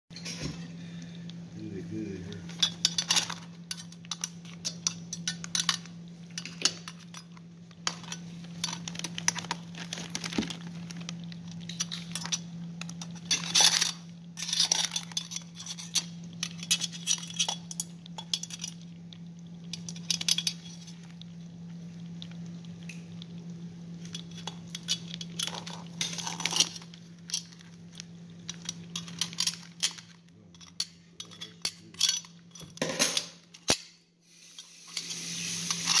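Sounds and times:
steady low hum: 0.2s - 36.0s
metal tongs clicking on crab shells: 2.5s - 9.6s, 24.1s - 32.8s.

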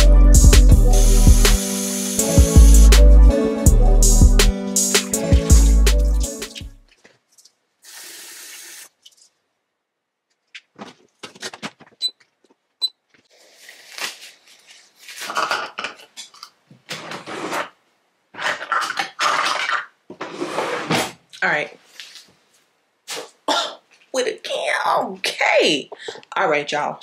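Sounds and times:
tap water running: 1.0s - 2.8s, 7.8s - 8.9s.

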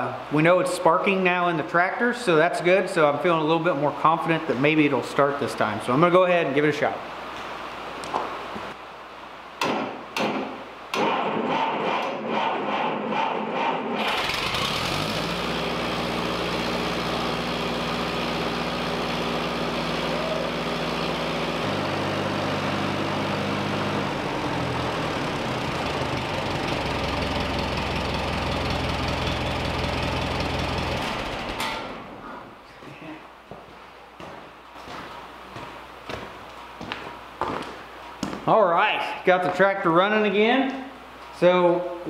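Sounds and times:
tractor engine running: 14.0s - 32.1s.

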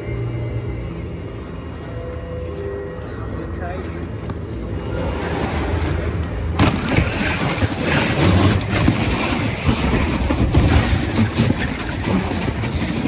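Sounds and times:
sled rumbling down a track: 6.1s - 13.0s.

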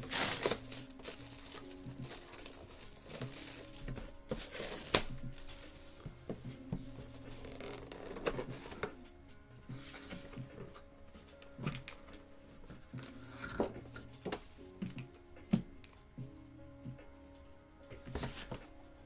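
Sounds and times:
cardboard box rustling and rubbing: 7.0s - 8.9s.

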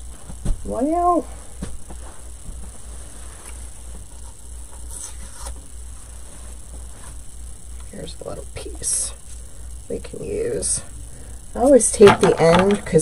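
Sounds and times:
steady low hum: 0.0s - 13.0s
handling noises: 12.0s - 13.0s.

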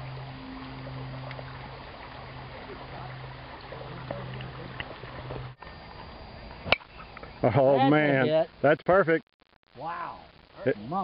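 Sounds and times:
creek running over rocks: 0.0s - 8.5s
low steady hum: 0.0s - 11.0s.

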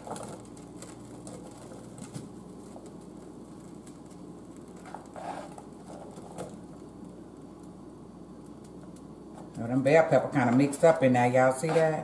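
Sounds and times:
utensil scraping cutting board: 5.2s - 5.6s.

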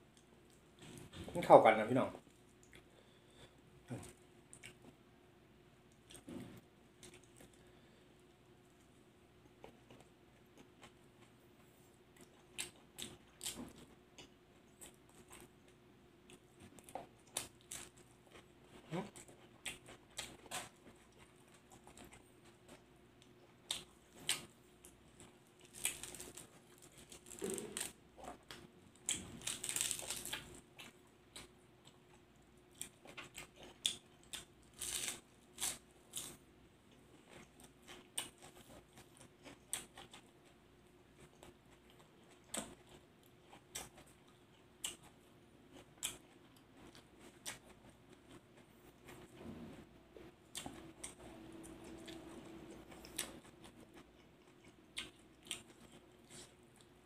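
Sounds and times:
person chewing and crunching: 5.9s - 8.0s, 12.1s - 36.4s, 37.1s - 49.4s, 50.5s - 57.0s.

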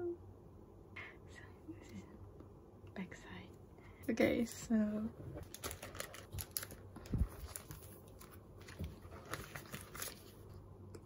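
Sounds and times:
paper and card rustling: 5.4s - 10.6s.

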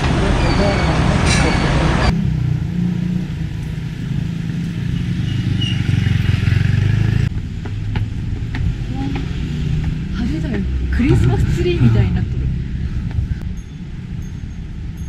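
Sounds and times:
street sound: 0.0s - 15.0s.

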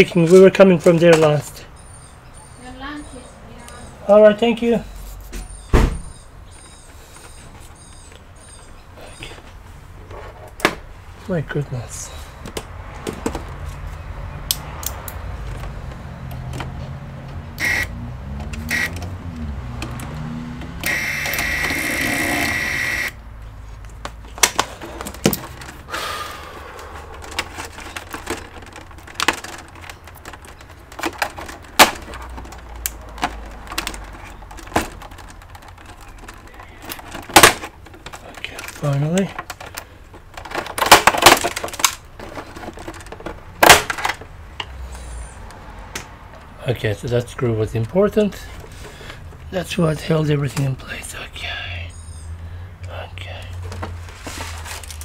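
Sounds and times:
clicks and knocks of handling plastic: 12.4s - 13.9s, 23.8s - 25.9s, 26.8s - 44.8s, 52.9s - 55.0s
electric screwdriver whirring: 17.6s - 17.9s, 18.6s - 19.1s, 20.8s - 23.1s.

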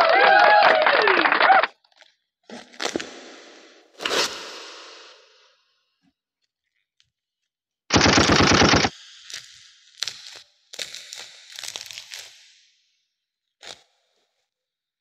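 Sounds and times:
packaging ripping open: 10.0s - 12.3s.

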